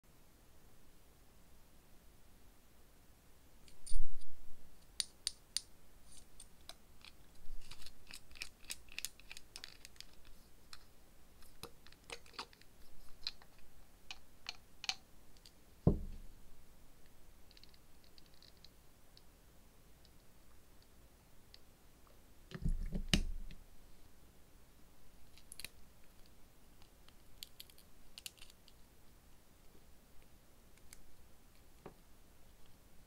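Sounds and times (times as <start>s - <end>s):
dull knock: 15.9s - 16.2s.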